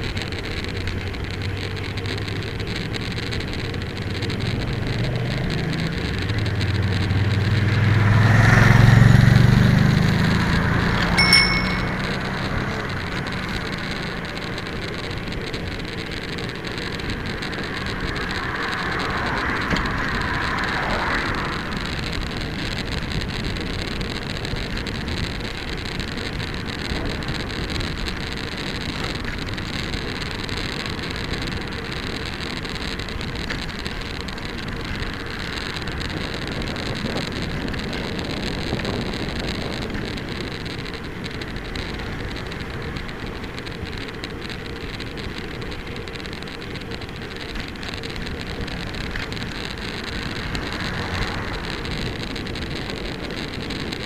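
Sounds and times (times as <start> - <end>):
wind noise on microphone: 0.0 - 54.0
car passing: 5.0 - 14.6, 16.6 - 23.7, 48.6 - 54.0
tyre hiss on wet road: 13.2 - 54.0.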